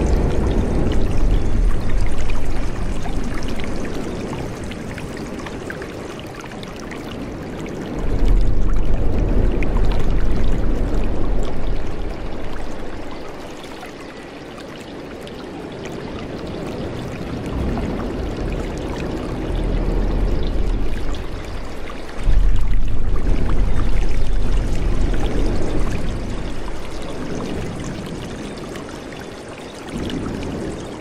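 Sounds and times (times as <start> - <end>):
deep rumble: 0.0 - 4.4, 7.9 - 13.4, 17.5 - 28.3
stream flowing and splashing: 0.0 - 31.0.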